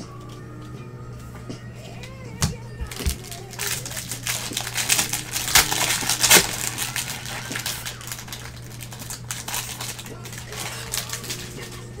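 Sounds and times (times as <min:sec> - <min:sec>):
wrapper crinkling and tearing: 0:02.8 - 0:12.0.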